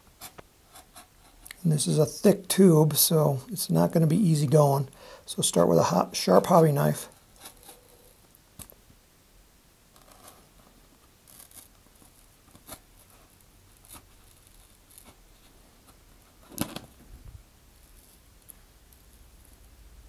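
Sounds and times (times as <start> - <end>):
knife scratching paper tube: 11.3 - 15.6.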